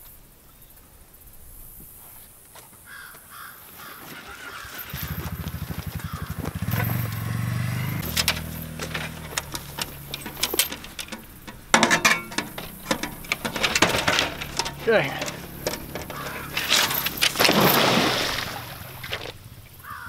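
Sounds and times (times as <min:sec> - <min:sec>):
brush rustling: 0:03.6 - 0:19.6
small engine running: 0:04.3 - 0:11.7
wire trap metallic rattle: 0:06.7 - 0:19.3.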